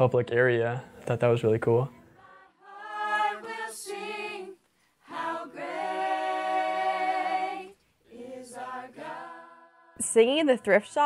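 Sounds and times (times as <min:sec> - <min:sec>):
group singing a cappella: 0:02.1 - 0:10.2.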